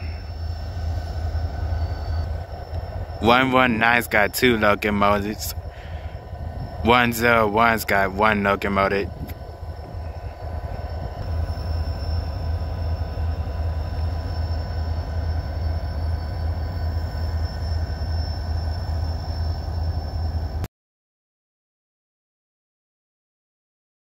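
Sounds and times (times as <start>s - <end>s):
diesel locomotives rumbling: 0.0s - 20.7s.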